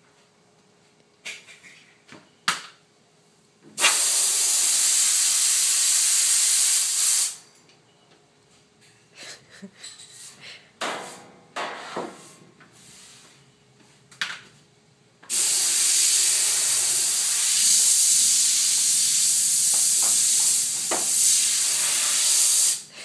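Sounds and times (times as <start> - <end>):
compressed air hissing: 3.8 - 7.4, 15.3 - 22.9.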